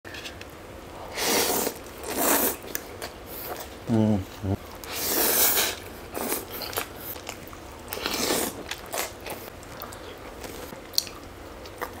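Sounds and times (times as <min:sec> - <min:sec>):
person chewing food: 0:04.7 - 0:12.0.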